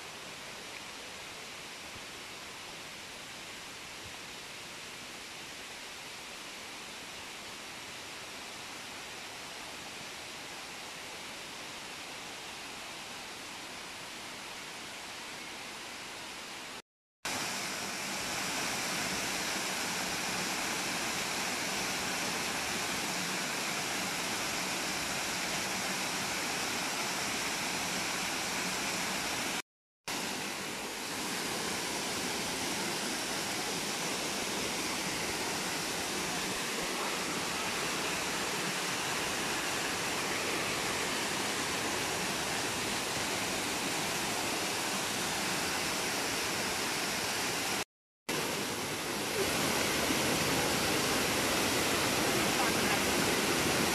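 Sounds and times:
water rushing over rocks: 17.3s - 53.9s.

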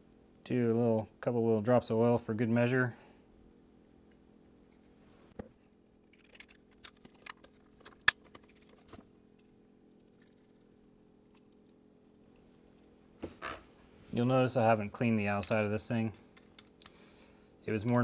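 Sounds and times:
faint steady hum: 0.0s - 18.0s
light clicks and taps of motor parts: 17.7s - 18.0s.

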